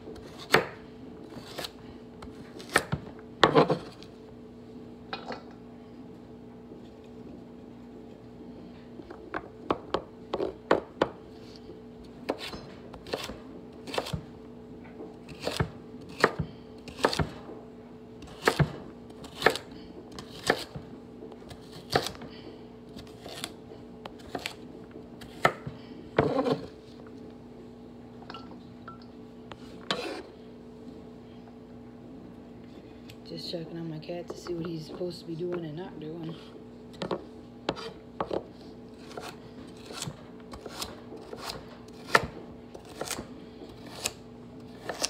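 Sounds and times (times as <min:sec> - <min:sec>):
low steady hum: 0:00.0 - 0:45.0
knife chopping on wooden board: 0:00.2 - 0:00.8, 0:02.6 - 0:04.0, 0:12.3 - 0:14.2, 0:15.3 - 0:17.4, 0:18.2 - 0:20.8, 0:21.5 - 0:22.2, 0:25.2 - 0:26.7, 0:39.0 - 0:43.2, 0:44.8 - 0:45.0.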